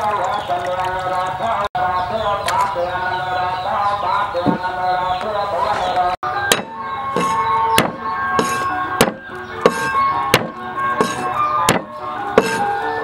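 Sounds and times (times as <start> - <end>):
background music: 2.8 - 13.0
cleaver chopping on wooden board: 6.5 - 12.7.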